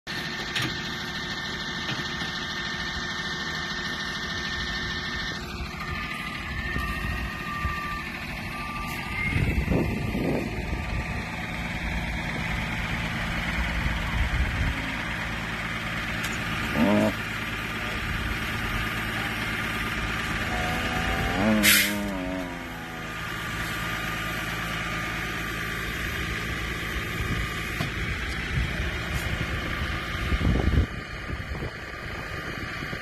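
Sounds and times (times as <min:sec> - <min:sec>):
truck engine idling: 0:00.1 - 0:33.0
short pitched call: 0:20.4 - 0:23.2.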